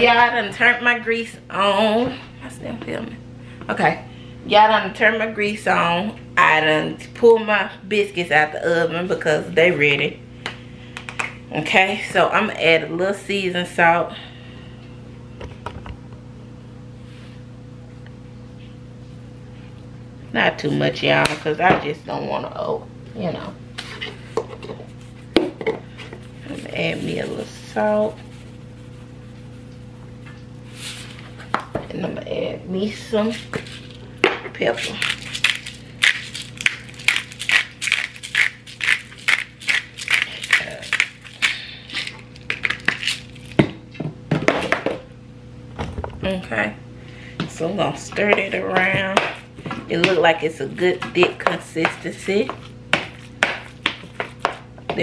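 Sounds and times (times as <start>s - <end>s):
steady low hum: 0.0s - 55.0s
pepper grinder crunching: 33.3s - 34.0s, 34.7s - 43.7s, 52.0s - 54.6s.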